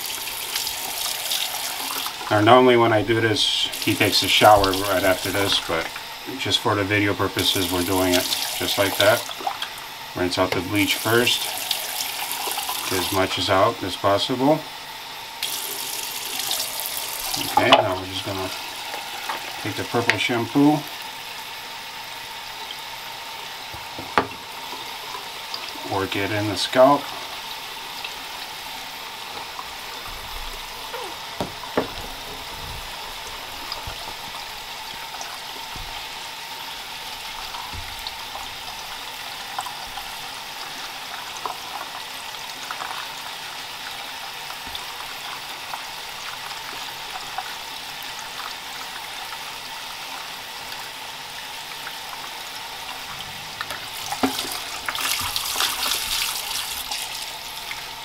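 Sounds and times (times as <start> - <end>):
tap running into sink: 3.7 - 6.0, 23.7 - 24.9, 31.3 - 36.1, 37.3 - 38.5, 53.0 - 57.1
water splashing: 52.8 - 57.8
wet hair rubbing: 53.7 - 57.4.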